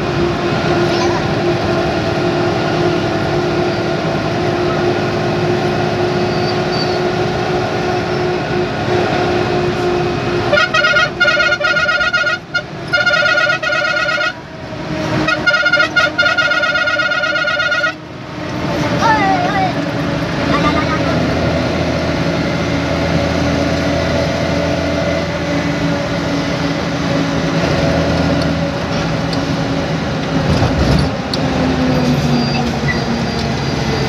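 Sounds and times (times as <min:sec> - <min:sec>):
bus engine drone: 0:00.0 - 0:34.0
road noise: 0:00.0 - 0:34.0
bus horn tooting: 0:03.7 - 0:18.1.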